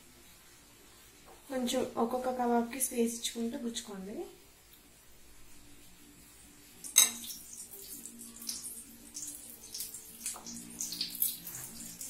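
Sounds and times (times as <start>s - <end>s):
butter and oil sizzling in pan: 6.4s - 12.0s.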